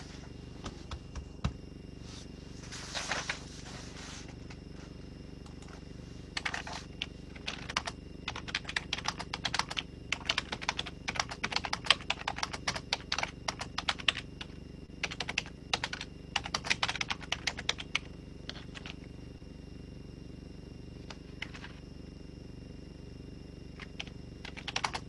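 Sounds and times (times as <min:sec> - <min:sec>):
faint steady low hum: 0:00.0 - 0:25.0
keyboard typing clicks: 0:06.4 - 0:14.2, 0:23.8 - 0:25.0.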